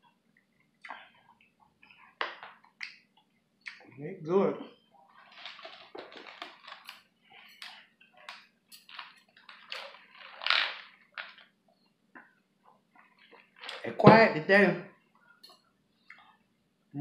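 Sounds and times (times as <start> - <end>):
wet chewing sounds: 5.1 - 11.5.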